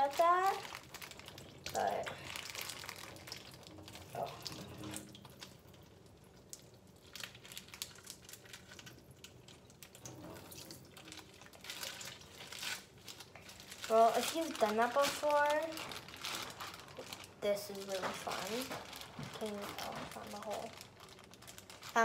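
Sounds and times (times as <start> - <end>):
water splashing into metal sink: 3.0 - 6.7, 9.9 - 12.3.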